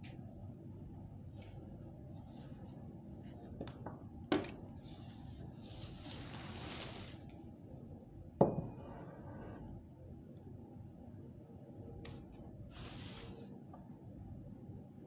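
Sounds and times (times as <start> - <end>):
cloth and plastic rustling: 4.8 - 7.5
knock on tabletop: 8.4 - 8.8.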